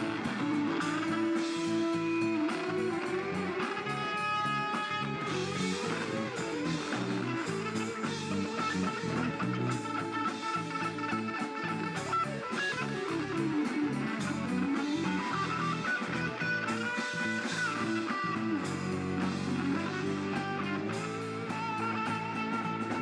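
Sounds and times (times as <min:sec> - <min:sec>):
electric guitar bending notes: 0:00.0 - 0:23.0
rock band playing: 0:00.0 - 0:23.0.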